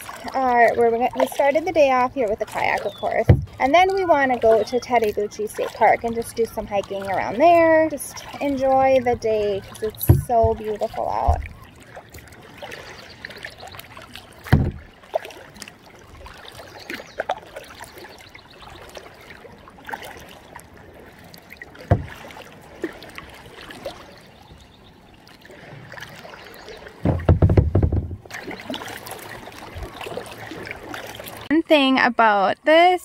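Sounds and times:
paddle dips and drips: 0.0s - 33.0s
sharp knocks: 3.3s - 3.6s, 14.5s - 14.8s, 21.9s - 22.2s, 27.0s - 28.4s.

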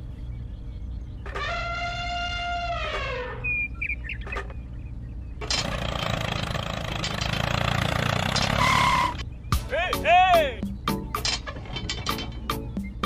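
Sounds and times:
toy tractor engine rumble: 5.4s - 9.2s.

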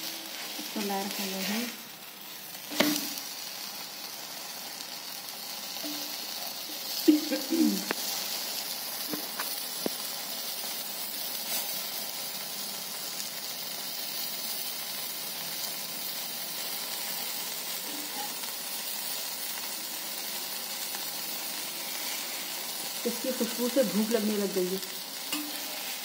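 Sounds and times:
ghee sizzling on hot pan: 0.0s - 26.0s.

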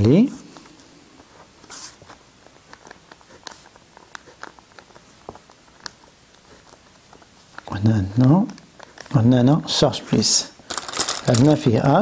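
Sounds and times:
paper and cardboard rustling: 8.8s - 12.0s.

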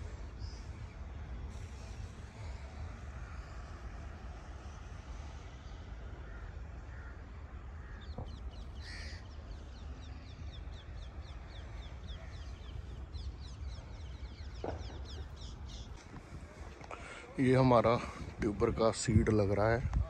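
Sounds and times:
harsh bird call: 7.8s - 10.2s
wind on microphone: 18.0s - 20.0s.

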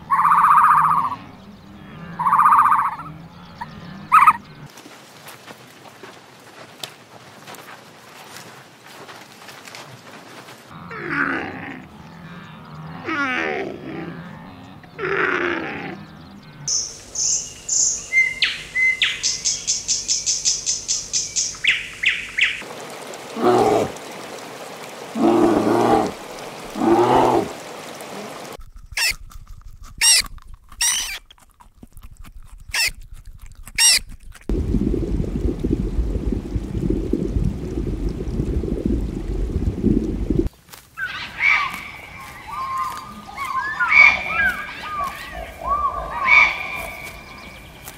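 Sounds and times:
lower animal calls: 0.0s - 4.4s, 25.1s - 29.1s, 41.0s - 47.6s
wavering animal calls: 0.0s - 4.7s, 25.0s - 29.1s, 41.0s - 47.5s
sharp high squeaks: 29.0s - 29.2s, 30.0s - 31.3s, 32.7s - 33.0s, 33.8s - 34.1s.

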